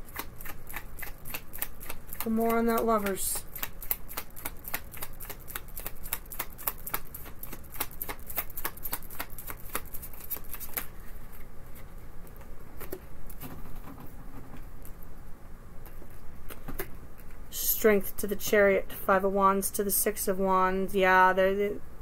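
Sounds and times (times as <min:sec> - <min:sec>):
cards being shuffled: 0:00.1 - 0:13.0
cards tapping: 0:00.2 - 0:10.9.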